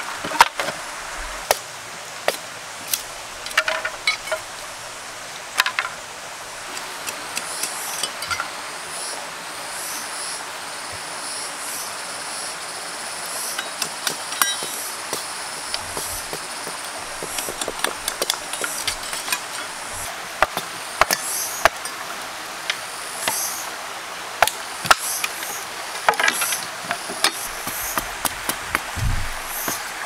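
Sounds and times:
stream rushing: 0.0s - 30.0s
machete chopping bamboo: 13.6s - 21.8s, 24.4s - 25.4s, 26.1s - 29.9s.

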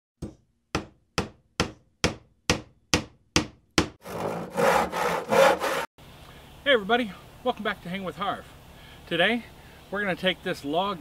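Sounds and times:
hammer strikes: 0.2s - 4.8s.

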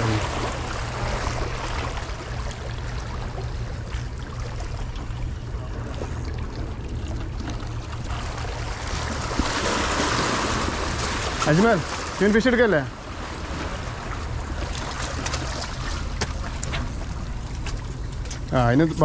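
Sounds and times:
sea water washing: 0.0s - 19.0s.

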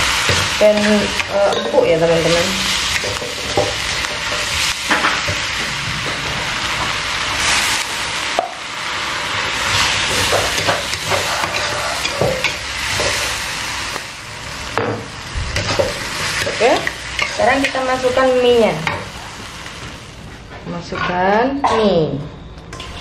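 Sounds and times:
vegetables sizzling in a wok: 0.0s - 20.4s
ladle clinking and scraping wok: 2.8s - 8.5s, 9.5s - 13.4s, 15.6s - 18.2s, 22.7s - 23.0s.

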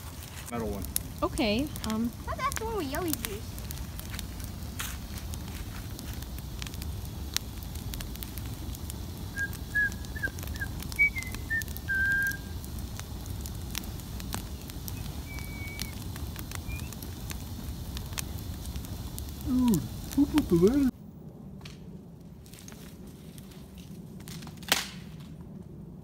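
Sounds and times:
fire crackles and pops: 0.0s - 26.0s
rush of bonfire flames: 0.0s - 26.0s
high whistling notes: 9.3s - 12.5s, 14.9s - 16.0s, 16.6s - 17.1s.

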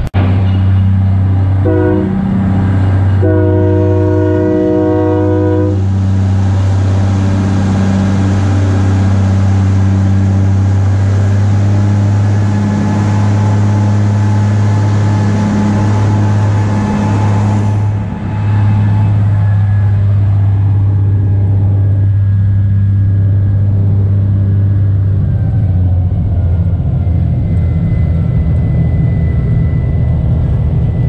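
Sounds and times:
diesel locomotive engine drone: 0.0s - 31.0s
train air horn: 1.6s - 10.5s.

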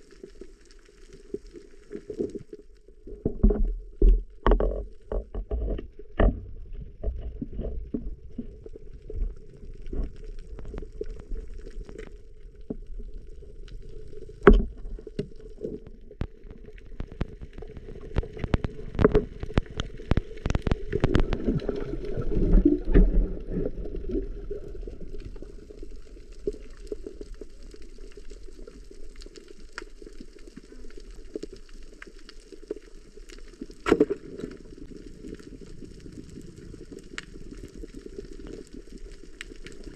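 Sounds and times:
muffled underwater water churn: 0.0s - 39.9s
underwater clicks and knocks: 2.0s - 12.9s, 14.3s - 24.3s, 33.8s - 34.6s.

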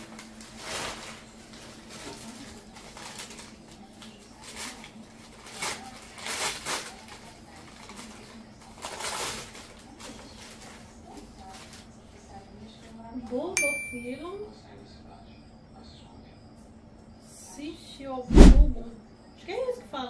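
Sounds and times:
wrapping rustling and crinkling: 0.0s - 12.0s
steady low hum: 18.3s - 19.0s.

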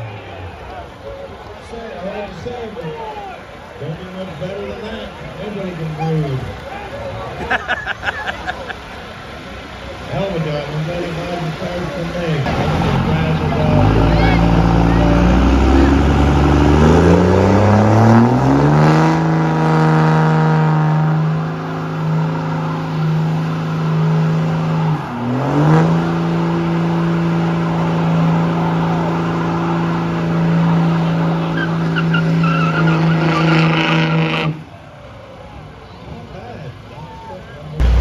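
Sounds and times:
truck engine revving: 8.1s - 34.7s, 37.8s - 38.0s
tyres squealing: 31.3s - 34.4s.

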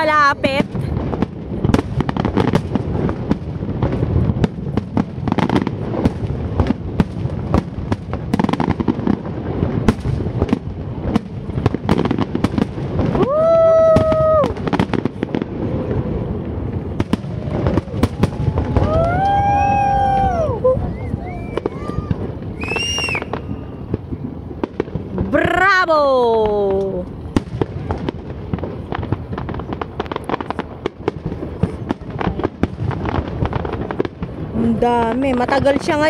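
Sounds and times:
fireworks bangs and crackles: 0.0s - 36.0s
rising pitched whoop: 13.1s - 14.6s, 17.2s - 23.3s.

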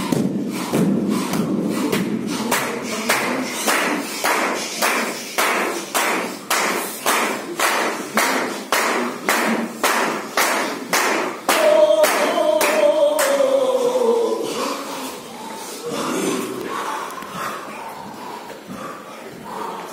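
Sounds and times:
men clapping in unison: 2.0s - 13.6s
low group chanting: 7.0s - 19.9s
long held falling vocal call: 11.5s - 14.7s.

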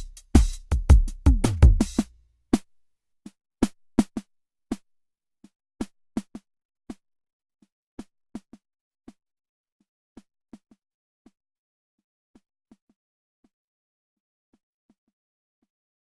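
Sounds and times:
drum machine clicky hits: 0.0s - 2.1s.

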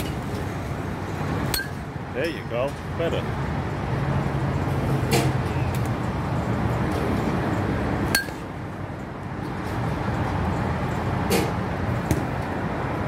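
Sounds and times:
metal bat hitting ball: 1.5s - 1.8s, 8.1s - 8.4s.

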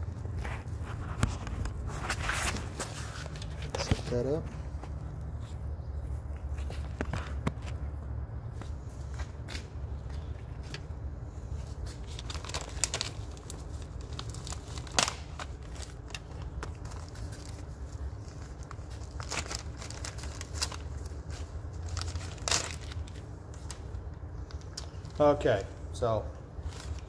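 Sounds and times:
plastic bag and paper crinkling: 8.6s - 25.6s, 26.5s - 27.0s.

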